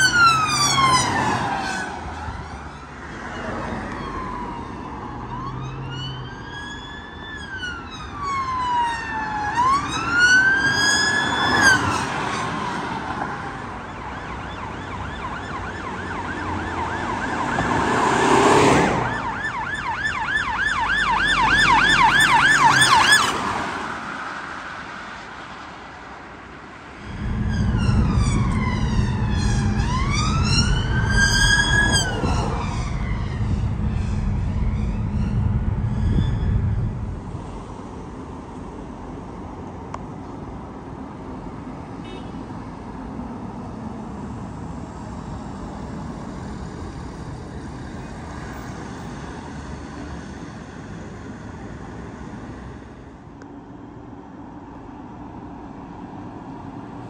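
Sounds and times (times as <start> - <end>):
siren yelping: 0.0 - 12.0, 13.8 - 18.1, 18.9 - 23.5, 27.0 - 37.2
siren wailing: 0.0 - 23.8, 26.9 - 37.7
loud low rumble: 27.0 - 38.3.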